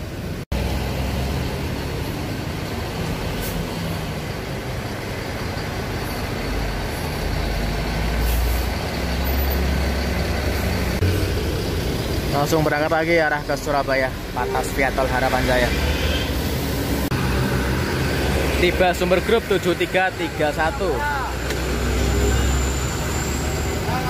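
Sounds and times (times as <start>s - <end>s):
diesel engine idling: 0.0s - 15.7s.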